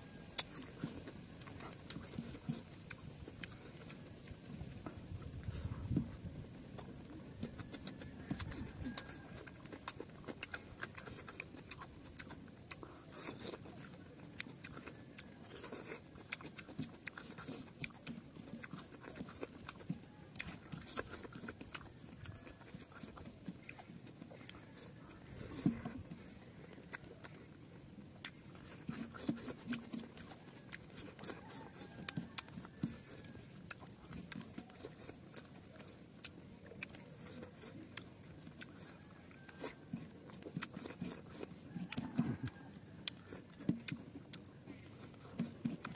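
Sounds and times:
person chewing and lip-smacking: 0.0s - 45.9s
wet mouth clicks: 28.2s - 45.9s.

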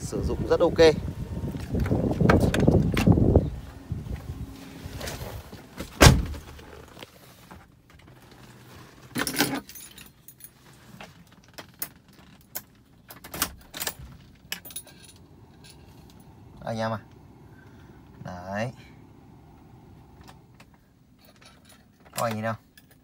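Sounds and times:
loud thump: 5.8s - 6.6s
keys jangling and clicking: 9.2s - 10.6s, 11.8s - 16.3s, 21.2s - 23.0s.

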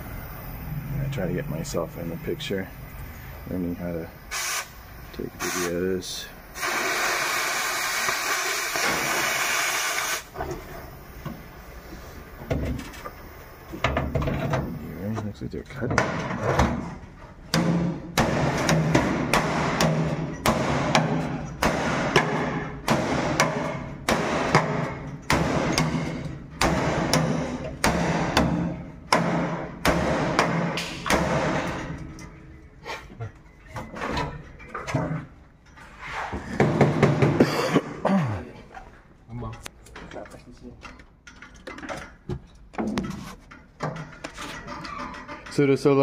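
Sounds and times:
cutting torch hissing: 0.0s - 14.0s
hammer on steel panels: 17.5s - 32.0s.

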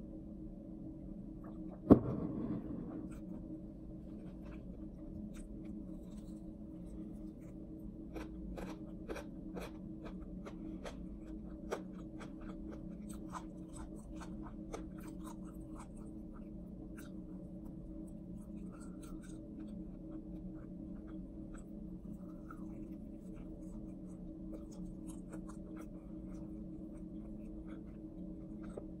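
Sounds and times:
steady low hum: 0.0s - 29.0s
chewing crispy food: 4.0s - 29.0s.

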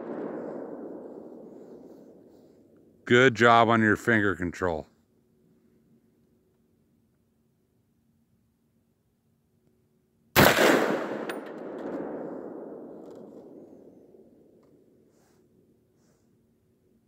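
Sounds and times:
rifle shot with long echo: 0.0s - 3.0s, 10.3s - 15.0s.

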